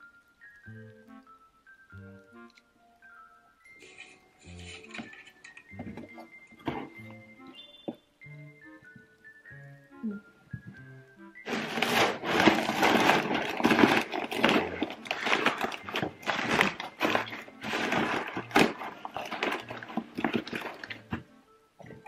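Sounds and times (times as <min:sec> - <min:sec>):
crumpled newspaper rustling: 0:11.5 - 0:21.2.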